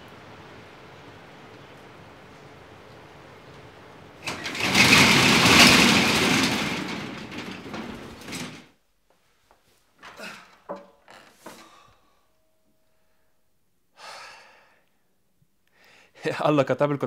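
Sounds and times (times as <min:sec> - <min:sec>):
metal shutter rattling down: 0:03.4 - 0:08.8.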